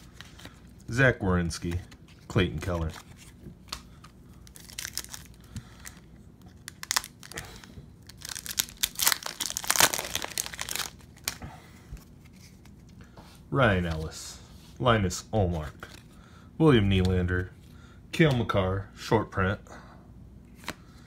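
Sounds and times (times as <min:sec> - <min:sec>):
foil wrapper crinkling and tearing: 0:04.4 - 0:11.4.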